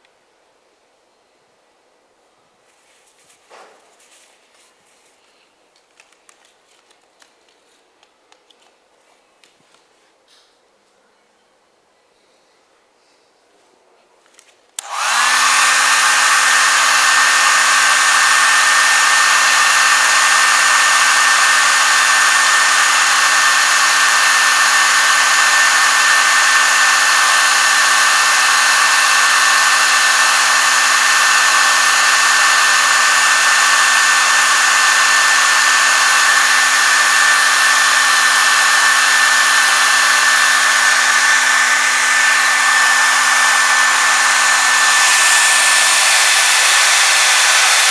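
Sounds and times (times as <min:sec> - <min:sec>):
hair dryer blowing: 0:14.8 - 0:47.9.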